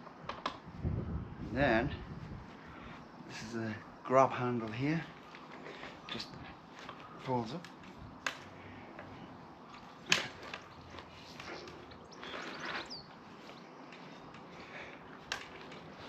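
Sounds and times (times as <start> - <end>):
rustle: 0.0 - 16.0
folding bike frame clacking shut: 9.9 - 11.5, 15.2 - 16.0.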